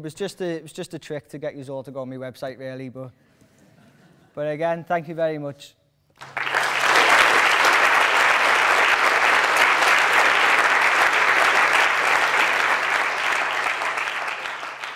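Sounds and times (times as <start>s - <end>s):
audience applauding: 6.2s - 14.9s.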